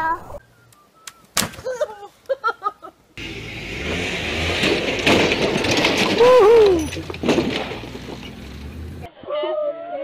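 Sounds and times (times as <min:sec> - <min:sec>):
utv engine revving: 0:03.2 - 0:09.1
vehicle knocks: 0:04.3 - 0:09.0.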